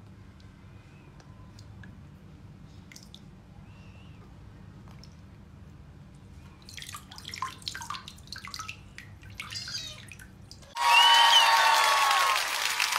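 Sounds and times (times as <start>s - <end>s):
water splashing in a basin: 6.6s - 10.8s
applause: 10.8s - 12.9s.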